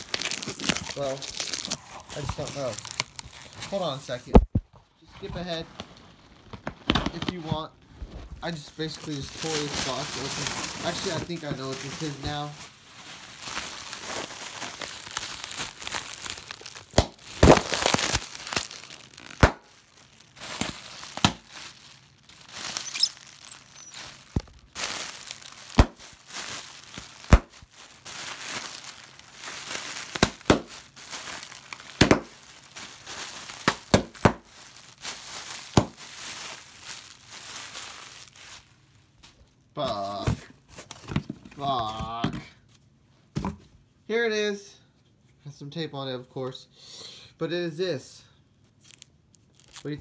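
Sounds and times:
plastic packaging crinkling and tearing: 0:00.0 - 0:04.5, 0:05.2 - 0:42.0, 0:48.5 - 0:50.0.

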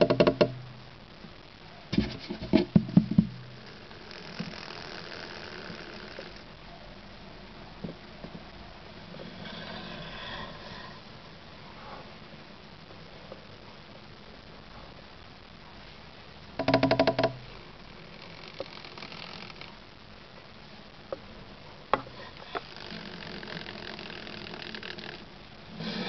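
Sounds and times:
snake tail rattling buzz: 0:03.6 - 0:06.4, 0:16.6 - 0:19.8, 0:22.6 - 0:25.2.

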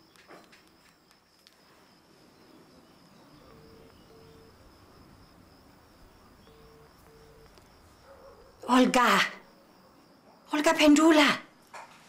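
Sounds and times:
phone ringback tone beeps: 0:03.4 - 0:04.6, 0:06.4 - 0:07.6.

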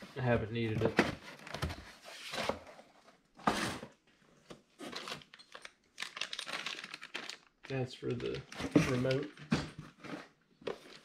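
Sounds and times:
packaging rustling: 0:04.8 - 0:11.0.

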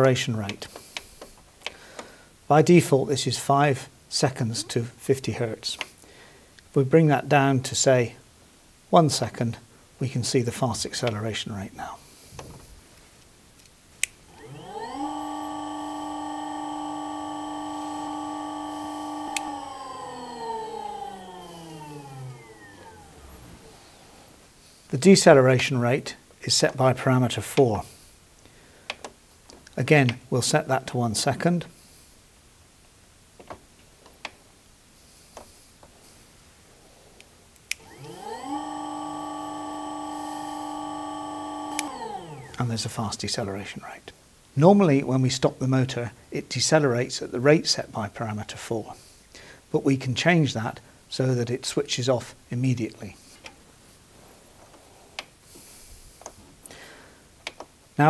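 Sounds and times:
electric motor whine: 0:14.3 - 0:24.5, 0:37.7 - 0:42.8.

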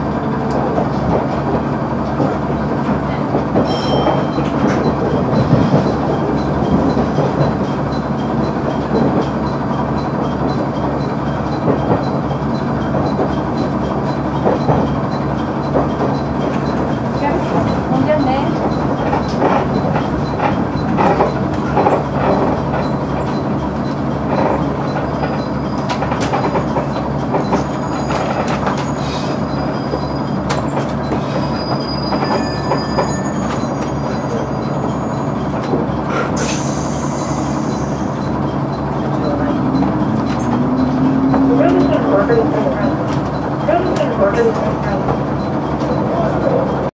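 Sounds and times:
diesel railcar engine running: 0:00.0 - 0:46.9
high brake squeal: 0:27.6 - 0:30.5, 0:31.1 - 0:35.5, 0:36.4 - 0:42.0.

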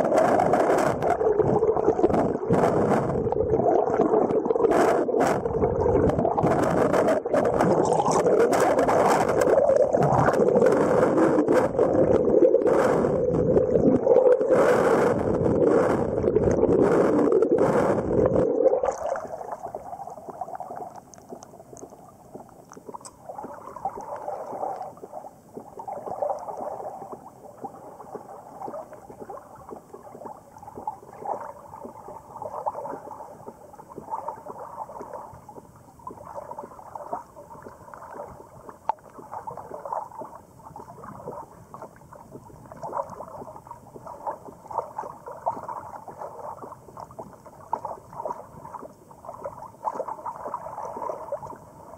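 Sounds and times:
underwater rush of water: 0:00.0 - 0:51.9
waves lapping against kayak hull: 0:14.4 - 0:51.9.

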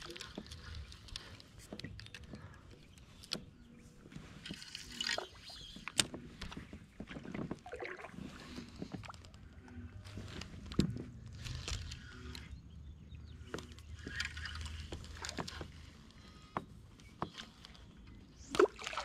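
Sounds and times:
light water sounds: 0:07.0 - 0:10.8, 0:17.4 - 0:19.0.

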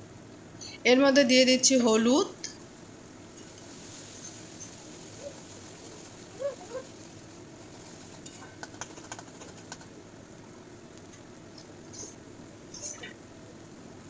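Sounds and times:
onions sizzling in oil: 0:03.2 - 0:08.4.

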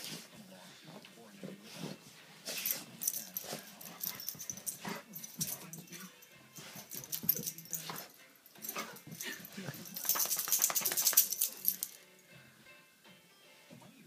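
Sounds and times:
rapid clicking and rustling: 0:09.8 - 0:11.9.

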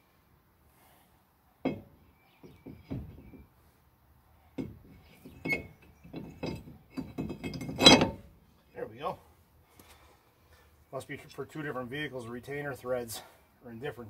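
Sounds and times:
metal brake rotor knocking and clinking: 0:04.6 - 0:08.3.

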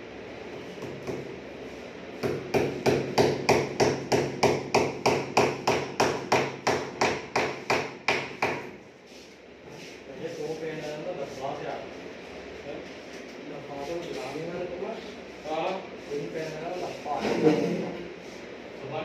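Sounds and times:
hammer tapping a nail: 0:02.2 - 0:08.8.

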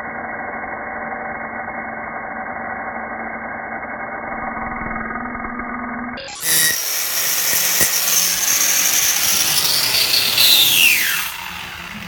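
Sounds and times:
grinder disc spinning down: 0:04.0 - 0:12.0
angle grinder whining on metal: 0:04.2 - 0:12.0.

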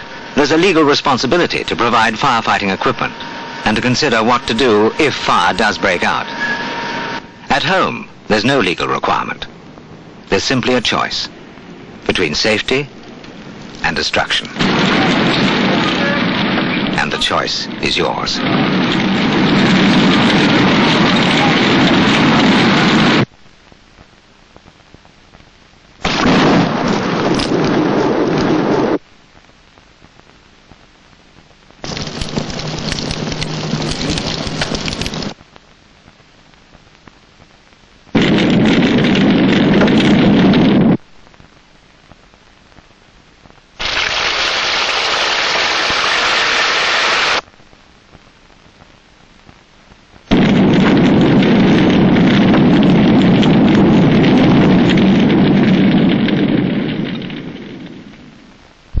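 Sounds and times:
loud rushing noise: 0:00.0 - 0:07.9.

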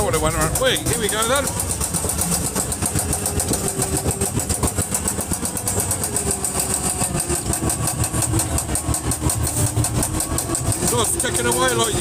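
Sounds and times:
ride car mechanical ticking: 0:00.0 - 0:12.0.

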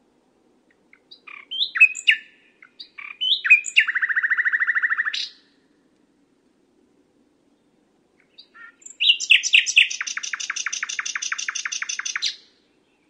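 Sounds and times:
nightingale singing: 0:00.7 - 0:05.6, 0:07.5 - 0:13.0.

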